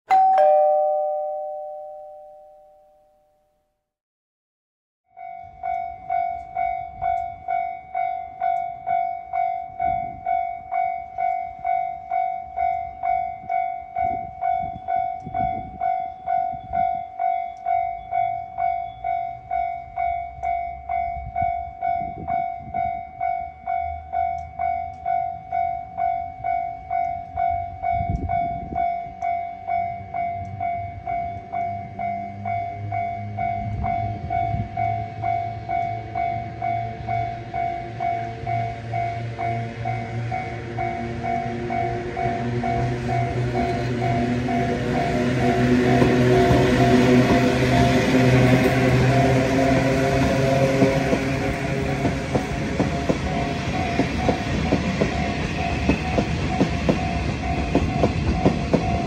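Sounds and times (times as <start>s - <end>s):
level crossing warning bell clanging: 0.1s - 3.2s, 5.1s - 59.0s
bright chime: 0.1s - 3.4s.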